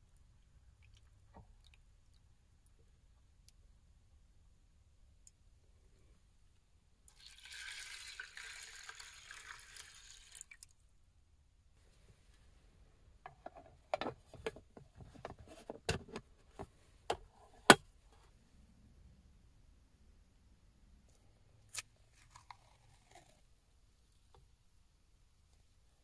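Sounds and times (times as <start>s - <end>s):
water pouring into a container: 7.1s - 10.7s.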